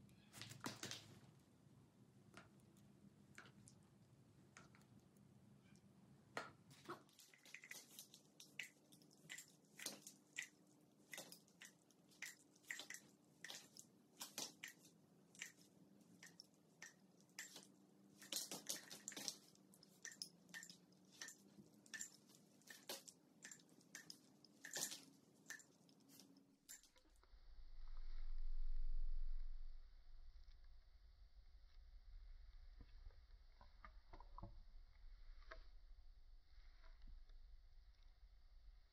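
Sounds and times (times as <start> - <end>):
faint steady hum: 0.0 - 38.9
paint dripping and splatting: 0.4 - 1.3, 6.4 - 27.3.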